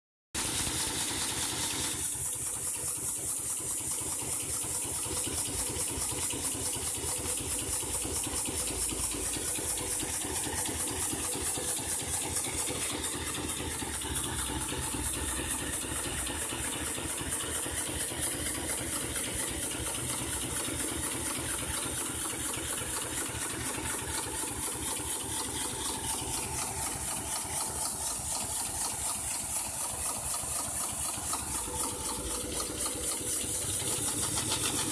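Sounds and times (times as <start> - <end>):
steam hissing: 0.4 - 34.9
steam locomotive chuffing: 0.4 - 34.9.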